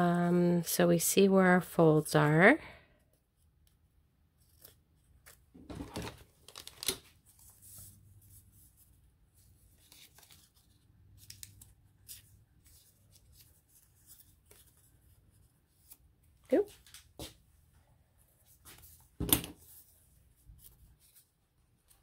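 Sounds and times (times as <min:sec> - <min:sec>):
paper rustling: 0:04.4 - 0:17.3.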